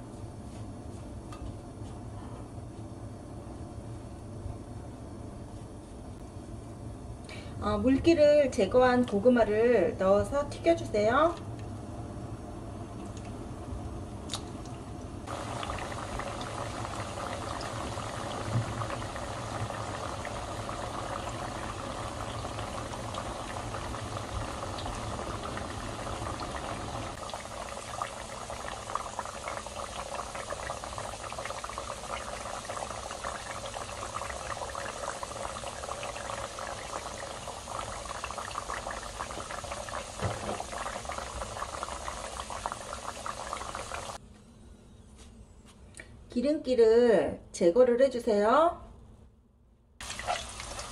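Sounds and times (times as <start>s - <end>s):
oil sizzling and crackling: 15.2s - 44.2s, 50.0s - 50.9s.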